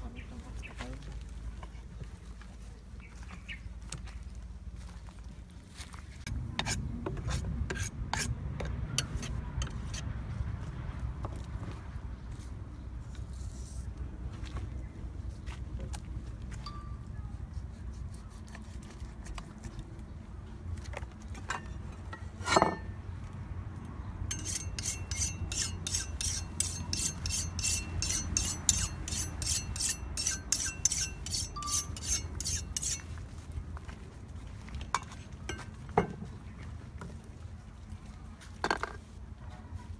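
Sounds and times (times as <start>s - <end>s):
knife blade scraping a block: 6.6s - 10.0s, 24.3s - 33.1s.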